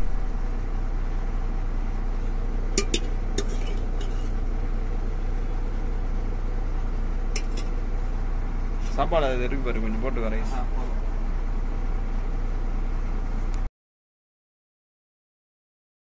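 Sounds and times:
steady low hum: 0:00.0 - 0:13.7
dishes clinking: 0:02.8 - 0:04.3.

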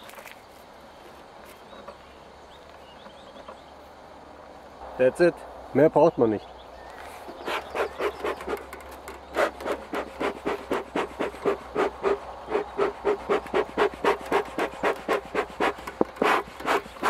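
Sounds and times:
bellows puffing air: 0:07.1 - 0:17.0.

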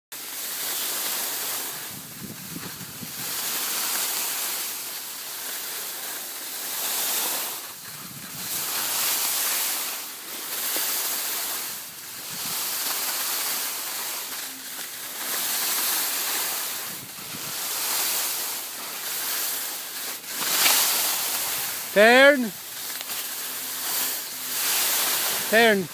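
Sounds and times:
skis scraping over snow: 0:00.2 - 0:25.9
wind rumbling on microphone: 0:01.8 - 0:03.5, 0:07.8 - 0:08.9, 0:11.7 - 0:12.8, 0:16.7 - 0:17.8.

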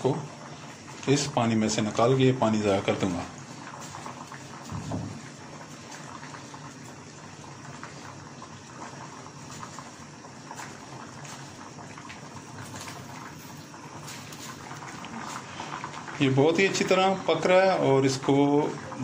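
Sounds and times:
water boiling and bubbling: 0:00.0 - 0:19.0.

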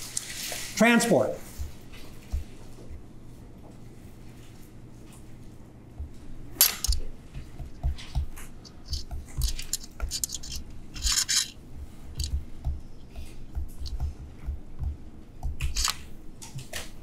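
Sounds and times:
stylus tapping and scratching screen: 0:01.5 - 0:03.0, 0:06.8 - 0:16.8.

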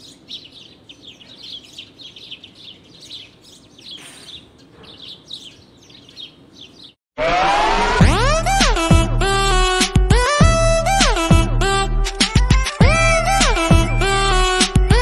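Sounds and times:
songbirds chirping: 0:00.0 - 0:07.0.

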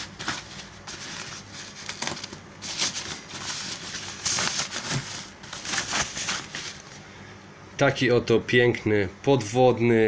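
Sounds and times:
plastic wrapping crinkling: 0:00.0 - 0:07.0.

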